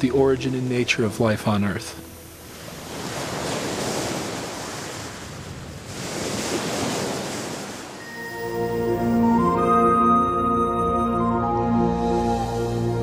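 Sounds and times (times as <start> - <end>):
ocean surf on beach: 0.0 - 9.6.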